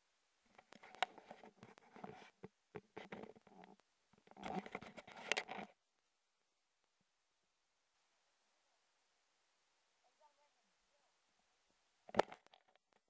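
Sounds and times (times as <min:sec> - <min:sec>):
camera handling rustling: 0:04.3 - 0:05.7.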